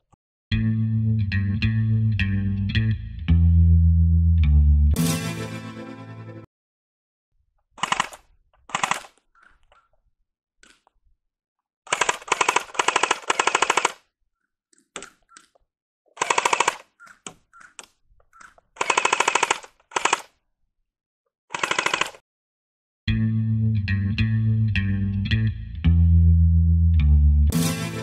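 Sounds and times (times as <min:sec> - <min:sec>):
airsoft rifle firing bursts: 0:07.8 - 0:09.2, 0:11.9 - 0:14.0, 0:16.2 - 0:17.2, 0:18.8 - 0:20.3, 0:21.5 - 0:22.2.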